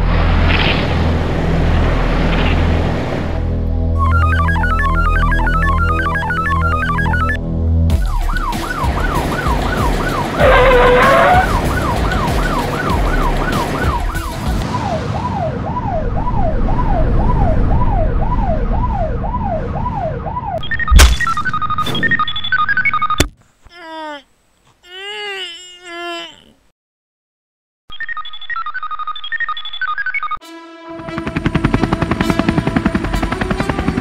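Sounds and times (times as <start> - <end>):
rumbling vehicle noise: 0.0 - 7.9, 8.5 - 23.4
cartoon siren wailing yelp: 4.0 - 7.4, 8.1 - 20.9
short beeps: 20.6 - 23.2.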